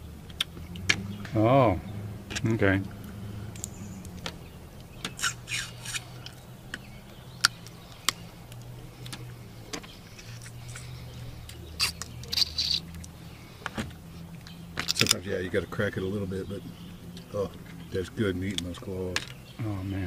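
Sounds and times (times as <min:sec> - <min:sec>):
steady low hum: 0:00.0 - 0:20.0
shells cracking: 0:02.3 - 0:13.8, 0:14.4 - 0:15.2
eating and sucking noises: 0:04.8 - 0:06.4, 0:07.4 - 0:14.5.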